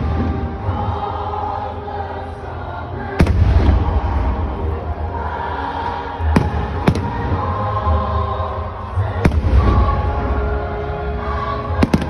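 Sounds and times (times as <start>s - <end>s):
music over loudspeakers: 0.0s - 12.0s
fireworks bursting: 11.8s - 12.0s.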